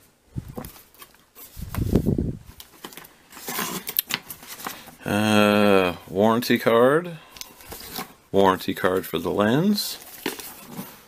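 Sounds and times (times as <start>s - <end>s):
packaging rustling: 0.6s - 5.0s, 7.4s - 8.2s, 9.9s - 11.0s.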